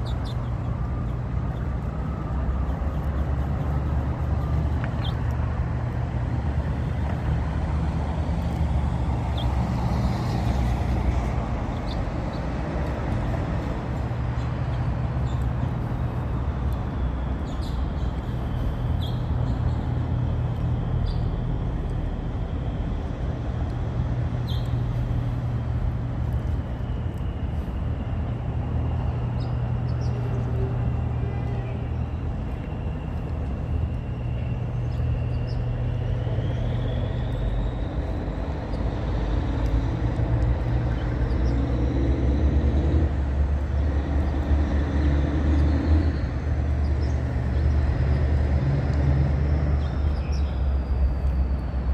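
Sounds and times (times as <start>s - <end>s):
freight train rumbling: 10.5s - 51.9s
faint high whine: 15.6s - 43.8s.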